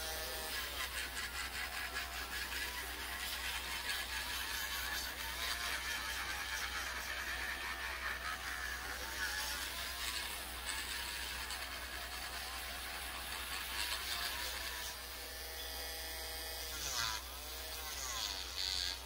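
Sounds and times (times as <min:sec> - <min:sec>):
electric nail drill whirring: 0:00.0 - 0:19.0.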